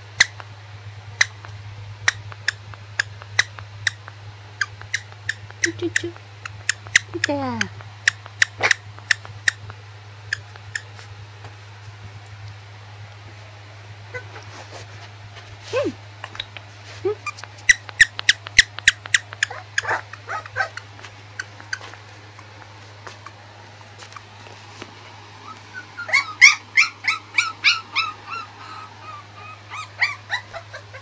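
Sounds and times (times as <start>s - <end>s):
puppy whimpering in high squeaks: 17.1s - 21.9s, 25.4s - 31.0s.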